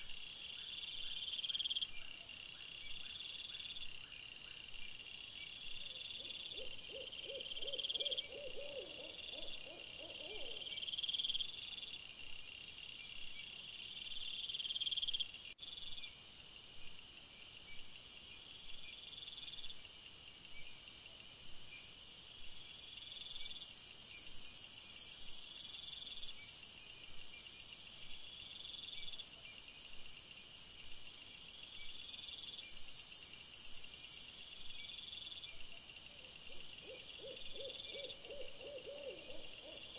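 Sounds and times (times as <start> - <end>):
crickets chirping: 0.0 - 39.9
low rapidly pulsed insect call: 0.0 - 39.9
high insect hiss: 10.1 - 39.9.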